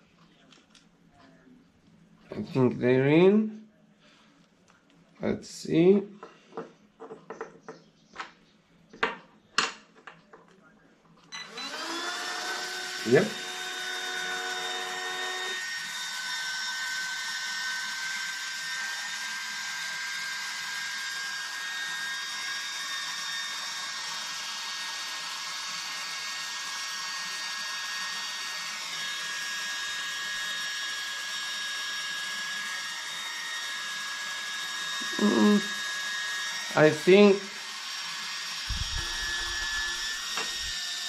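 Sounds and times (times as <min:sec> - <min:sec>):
small cooling fans whining: 0:31.4 - 0:41.0.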